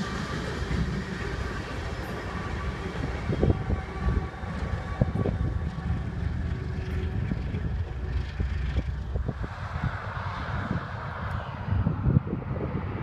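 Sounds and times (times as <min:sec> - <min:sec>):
wheels clicking on rails: 0:00.0 - 0:10.1
freight train rumbling past: 0:00.0 - 0:13.0.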